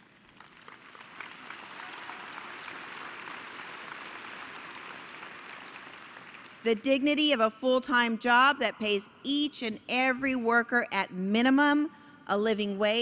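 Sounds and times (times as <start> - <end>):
large audience applauding: 0.0 - 6.7.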